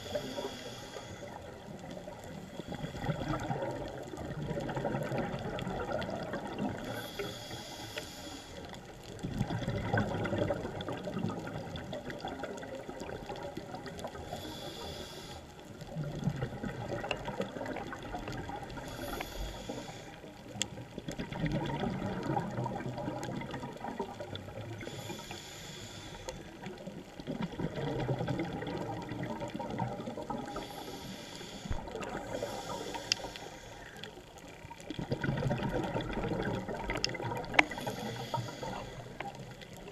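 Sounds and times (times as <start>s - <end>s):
hissing regulator inhale: 0.0s - 3.6s, 6.7s - 8.9s, 14.0s - 15.8s, 18.7s - 20.6s, 24.8s - 26.7s, 30.4s - 34.2s, 37.5s - 39.8s
bubbling exhale underwater: 2.0s - 7.1s, 9.2s - 14.2s, 21.1s - 25.2s, 26.6s - 30.9s, 34.9s - 39.9s.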